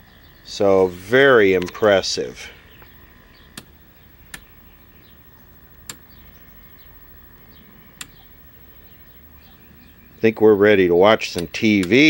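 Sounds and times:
faint steady hum: 0:00.0 - 0:12.0
switch clicks: 0:02.8 - 0:04.5, 0:05.7 - 0:06.5, 0:07.8 - 0:08.3, 0:11.2 - 0:12.0.

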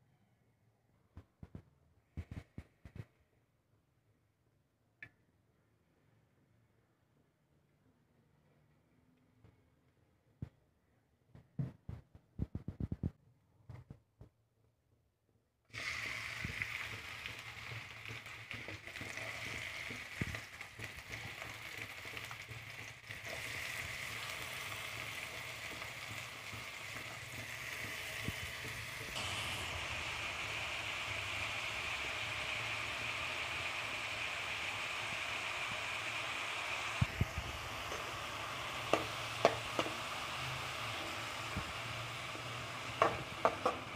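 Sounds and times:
onions sizzling in oil: 0:15.7 - 0:43.9.

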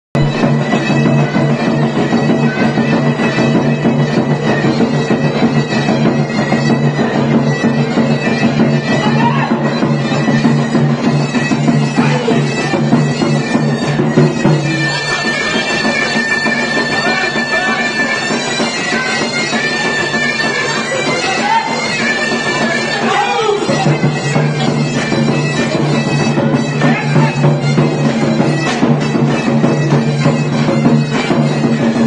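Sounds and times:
big drum beat: 0:00.2 - 0:15.0, 0:23.6 - 0:32.0
shrill double-reed pipe melody: 0:00.2 - 0:32.0.

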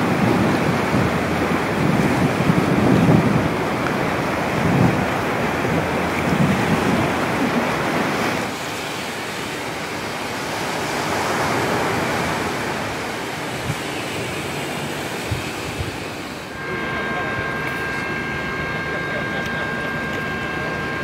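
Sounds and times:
wind buffeting microphone: 0:00.0 - 0:08.6, 0:11.0 - 0:19.0
sea rushing: 0:00.0 - 0:21.0.

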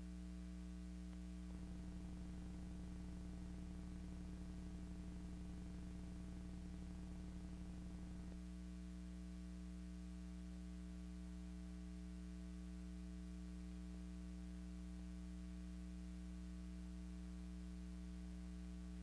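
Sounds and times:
electrical hum: 0:00.0 - 0:19.0
low buzz: 0:00.8 - 0:10.5.

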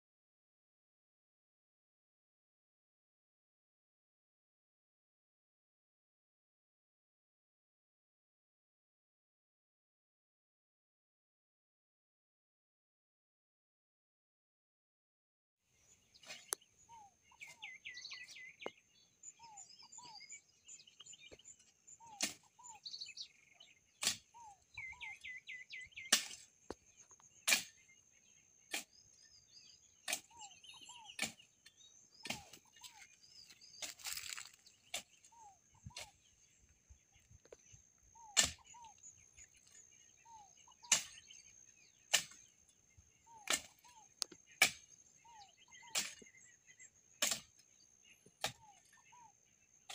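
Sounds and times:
birds chirping: 0:15.7 - 0:49.9
hoe chopping into soil: 0:22.0 - 0:22.7, 0:24.0 - 0:26.6, 0:27.4 - 0:27.9, 0:28.7 - 0:29.3, 0:30.0 - 0:31.6, 0:32.2 - 0:35.3, 0:38.2 - 0:39.0, 0:40.8 - 0:41.4, 0:42.0 - 0:42.5, 0:43.3 - 0:45.0, 0:45.8 - 0:46.4, 0:47.2 - 0:47.6, 0:48.3 - 0:48.8.

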